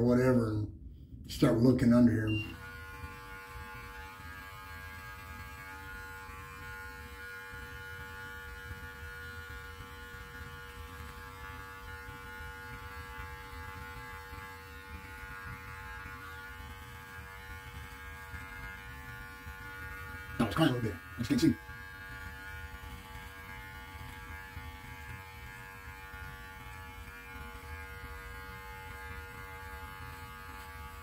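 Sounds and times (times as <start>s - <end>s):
electric hair clippers buzzing: 1.9s - 31.0s.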